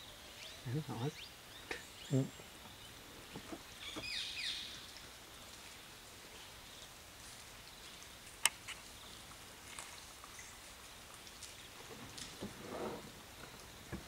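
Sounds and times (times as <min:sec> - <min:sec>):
outdoor background hiss: 0:00.0 - 0:14.0
faint ticks and clicks: 0:06.8 - 0:12.6.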